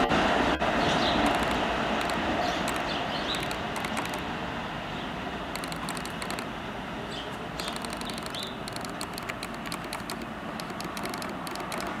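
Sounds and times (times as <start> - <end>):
subway train rumble: 0.0 - 7.6
quick light clicking: 1.2 - 4.2, 5.6 - 6.5, 7.6 - 12.0
short high squeaks: 1.2 - 4.2, 5.6 - 6.5, 7.6 - 12.0.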